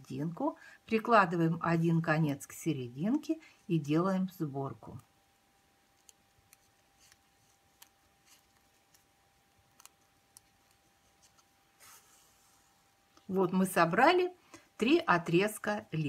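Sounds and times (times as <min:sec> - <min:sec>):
faint steady hum: 0:00.0 - 0:16.0
soft rustle: 0:05.8 - 0:13.3.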